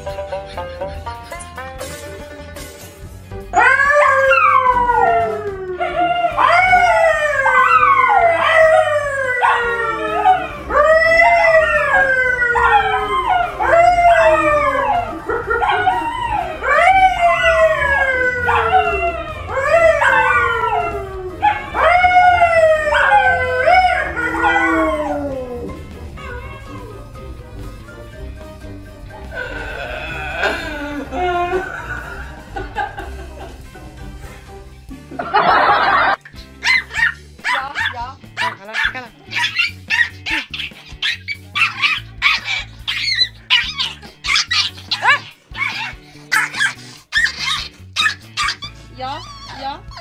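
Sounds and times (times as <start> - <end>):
dogs howling: 3.5 - 27.4, 29.3 - 33.1, 35.4 - 50.0
man howling: 3.6 - 27.1, 29.3 - 32.5.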